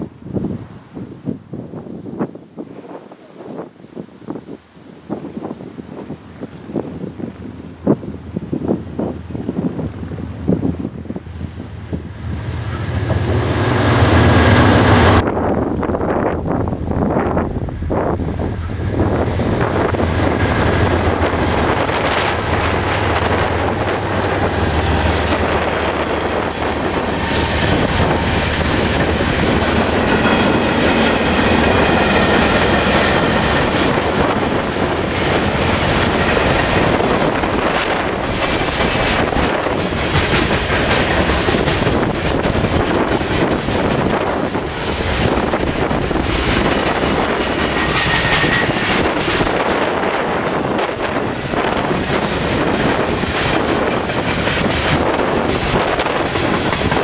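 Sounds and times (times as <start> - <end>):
locomotive engines passing: 9.4 - 57.0
wheels clattering on rail: 18.2 - 57.0.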